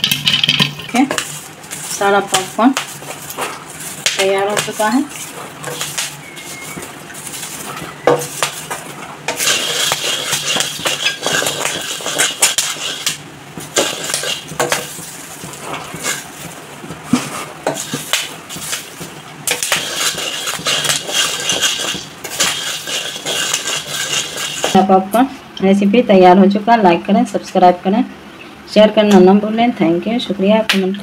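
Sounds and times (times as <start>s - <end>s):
kernels rattling and scraping: 0.0s - 24.8s
spatula stirring popcorn in a wok: 0.0s - 24.9s.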